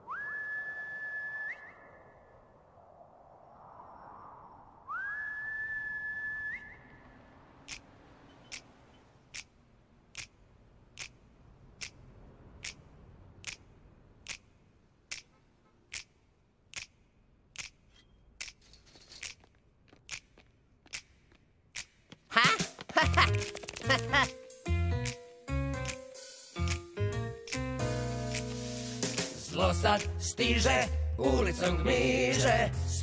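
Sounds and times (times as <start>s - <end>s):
loud sliding whistle: 0.0s - 2.3s, 4.8s - 7.0s
finger snaps: 25.8s - 26.9s, 28.3s - 28.6s, 30.0s - 30.2s.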